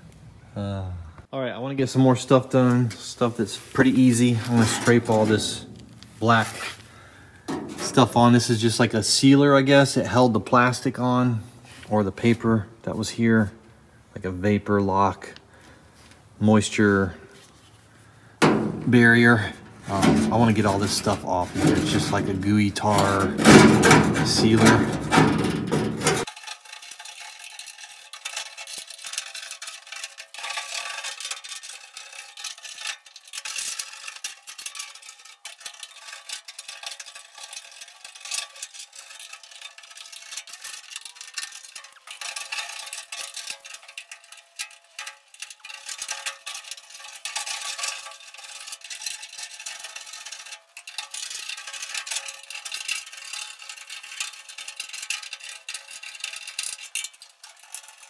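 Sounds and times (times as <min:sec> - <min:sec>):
scraper scraping tar off metal: 0:02.6 - 0:06.9, 0:18.5 - 0:58.0.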